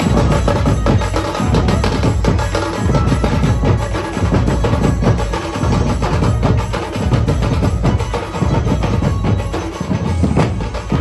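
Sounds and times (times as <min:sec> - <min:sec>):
marching drums: 0:00.0 - 0:11.0
bass-heavy music: 0:07.2 - 0:11.0.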